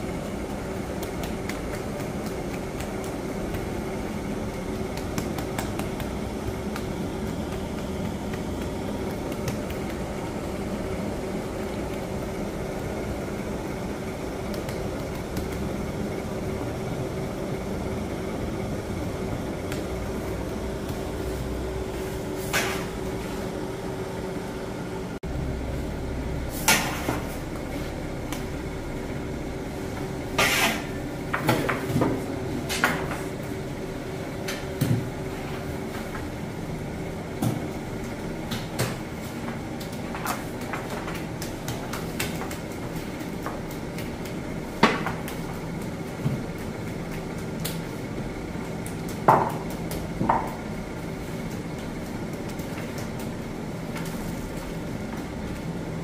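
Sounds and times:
steady hum: 0:00.0 - 0:56.0
bakery knocks and clanks: 0:49.2 - 0:50.7.

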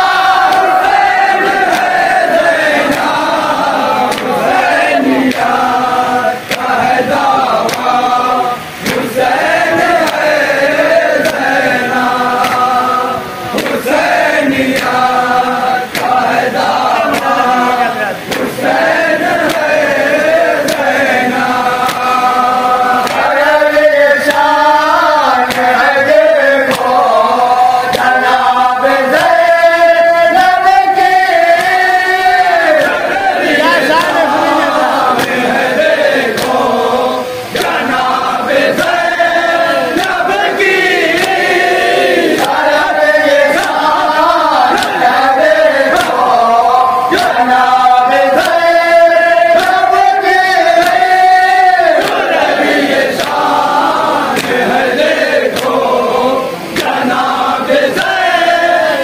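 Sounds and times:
men chanting a lament over microphone: 0:00.0 - 0:59.0
hands slapping chests: 0:00.1 - 0:05.7, 0:06.4 - 0:08.0, 0:08.8 - 0:12.8, 0:13.5 - 0:15.1, 0:15.8 - 0:17.5, 0:18.3 - 0:22.3, 0:23.0 - 0:23.5, 0:25.3 - 0:27.1, 0:27.8 - 0:29.5, 0:32.6 - 0:36.7, 0:37.5 - 0:39.2, 0:39.9 - 0:48.8, 0:49.5 - 0:50.1, 0:50.7 - 0:51.2, 0:51.9 - 0:53.6, 0:54.3 - 0:54.7, 0:55.5 - 0:55.8, 0:56.7 - 0:57.3.

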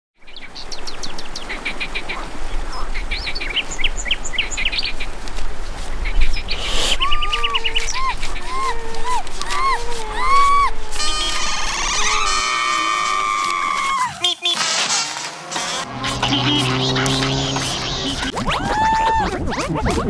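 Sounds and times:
bird call rising and falling: 0:06.3 - 0:14.8, 0:16.1 - 0:19.7
quick high bird chirps: 0:16.2 - 0:18.3.

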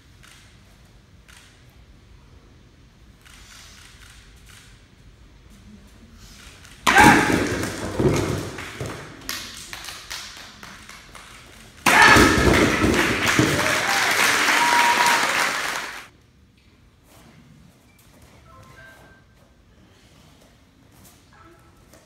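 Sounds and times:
concrete slabs crashing: 0:06.9 - 0:09.2, 0:11.9 - 0:14.1
pieces knocking onto floor: 0:06.9 - 0:09.4, 0:11.8 - 0:14.1
audience applause and cheering: 0:11.8 - 0:16.1.

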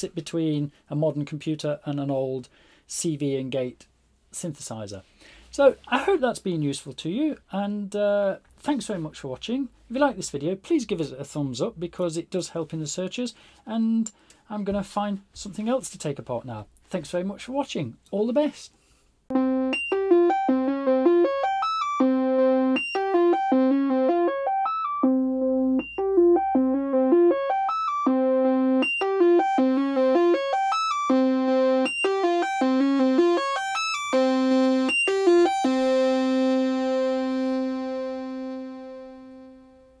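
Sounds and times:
synthesizer repeating note pattern: 0:19.3 - 0:39.8
held synthesizer note: 0:19.3 - 0:40.0.

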